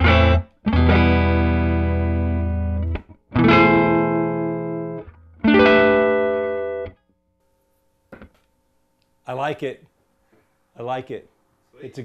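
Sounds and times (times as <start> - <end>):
electric guitar chords strummed: 0.0 - 7.0.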